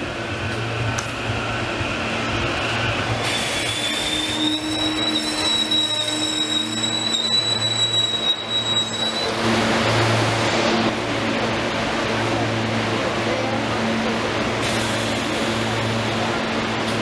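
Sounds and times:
electric train humming: 0:00.0 - 0:17.0
high-pitched wheel squeal: 0:03.3 - 0:09.4.

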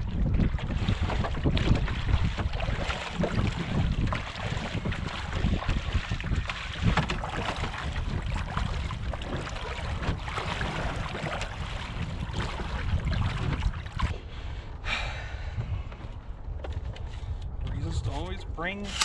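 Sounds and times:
boots splashing through water: 0:00.0 - 0:14.1
wind buffeting microphone: 0:00.0 - 0:19.0
kayak dragging: 0:00.3 - 0:14.2, 0:18.8 - 0:19.0.

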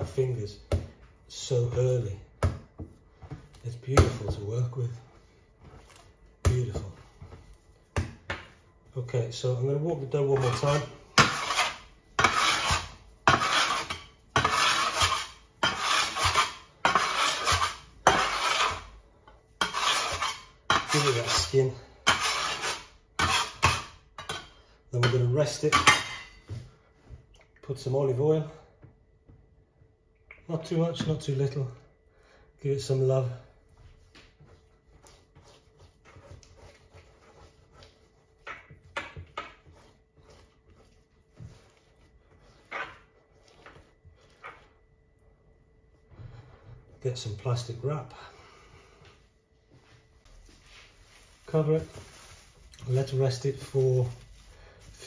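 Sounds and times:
hands squishing dough: 0:00.0 - 0:24.0, 0:32.6 - 0:48.0
metal scraper scraping countertop: 0:10.1 - 0:19.0, 0:19.6 - 0:26.4, 0:34.9 - 0:44.7.

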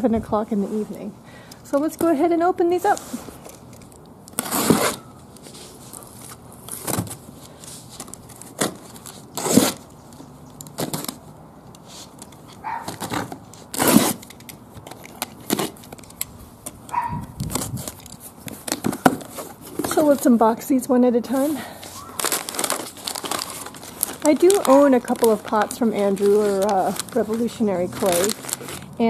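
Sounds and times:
packing tape scraping and ripping: 0:02.7 - 0:20.4, 0:21.2 - 0:29.0
cardboard rustling: 0:16.9 - 0:20.5, 0:21.3 - 0:29.0.

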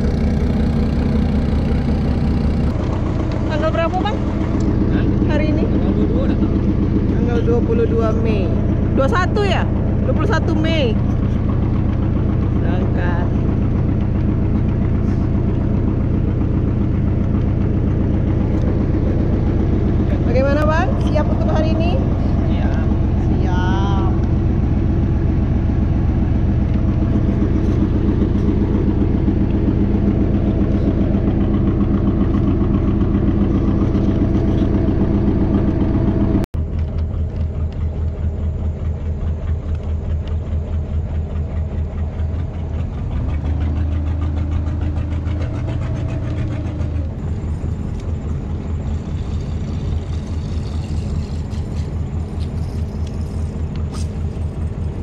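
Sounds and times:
boat engine running: 0:00.0 - 0:55.0.

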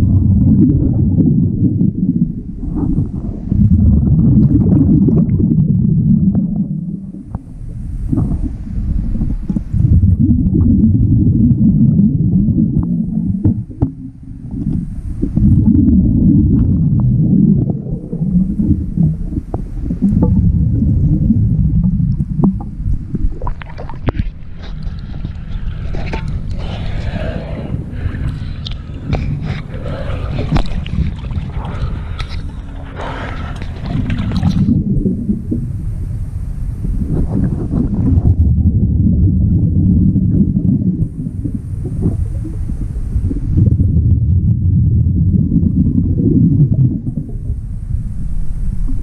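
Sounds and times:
underwater exhaled bubbles rumbling: 0:00.0 - 0:49.0
water splashing: 0:22.3 - 0:35.7.

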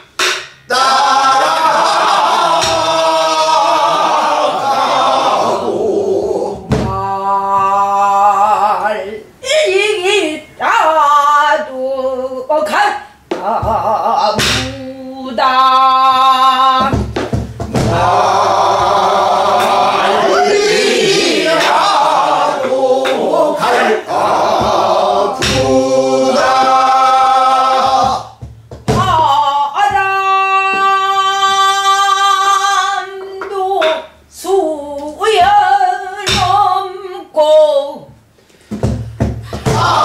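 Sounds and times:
woman singing in wavering voice: 0:06.1 - 0:17.0, 0:28.9 - 0:38.1
barrel drum struck with stick: 0:16.8 - 0:18.2, 0:24.5 - 0:25.8.

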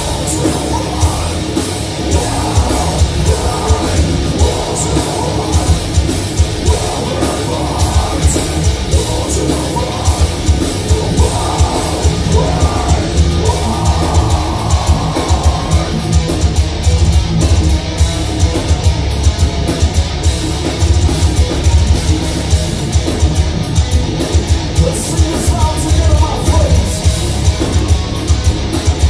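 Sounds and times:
person singing and yelling: 0:00.0 - 0:16.2, 0:24.8 - 0:28.0
heavy metal band playing live: 0:00.0 - 0:29.0
rapid drum hits: 0:00.0 - 0:29.0.

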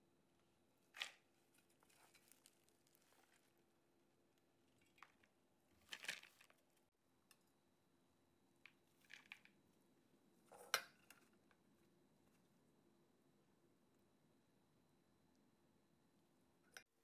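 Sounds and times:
bean sprouts rustling: 0:00.9 - 0:03.7.

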